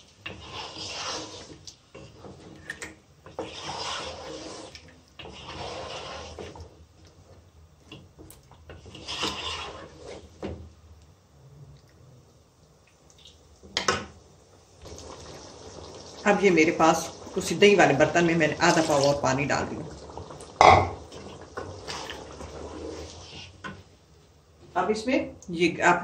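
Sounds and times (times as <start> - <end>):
wooden spoon stirring thick curry: 0.0 - 10.8, 14.9 - 24.8.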